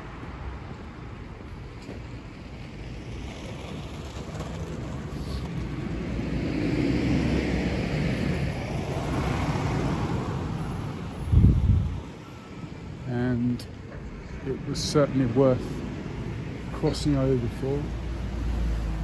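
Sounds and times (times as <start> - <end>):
car passing close by: 3.0 - 12.0.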